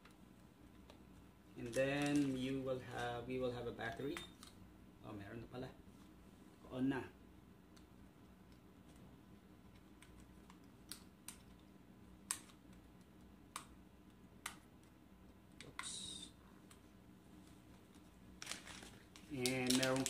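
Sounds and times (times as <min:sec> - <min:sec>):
device rustling: 0:16.6 - 0:20.0.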